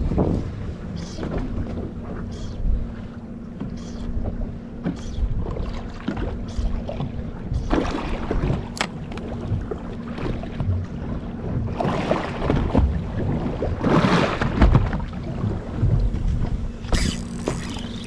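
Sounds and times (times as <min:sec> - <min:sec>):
wind buffeting microphone: 0:00.0 - 0:02.1
water slapping against boat hull: 0:00.0 - 0:18.0
faint steady hum: 0:15.0 - 0:18.0
short splashes: 0:16.8 - 0:18.0.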